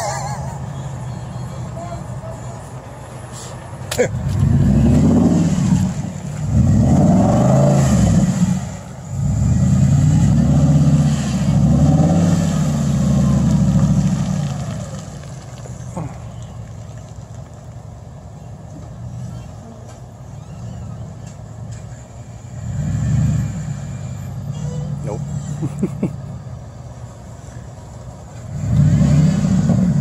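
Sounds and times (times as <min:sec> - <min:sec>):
pickup truck engine revving: 0:03.8 - 0:17.1, 0:22.4 - 0:26.4, 0:28.4 - 0:30.0.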